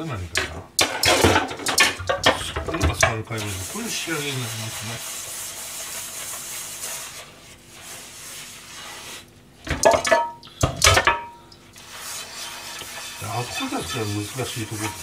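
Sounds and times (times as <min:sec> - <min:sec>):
metal pan clattering in sink: 0:00.4 - 0:03.5, 0:09.7 - 0:11.4, 0:12.4 - 0:15.0
soft scrubbing of cookware: 0:02.2 - 0:10.3, 0:11.1 - 0:15.0.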